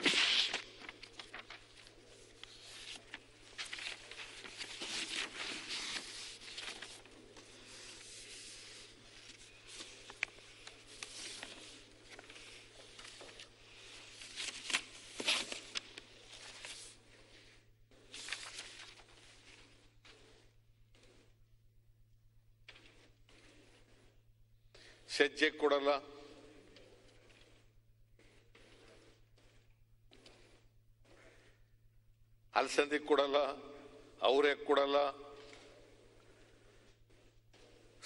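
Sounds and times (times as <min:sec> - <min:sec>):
paper rustling and crinkling: 0:00.0 - 0:17.0, 0:18.1 - 0:20.2.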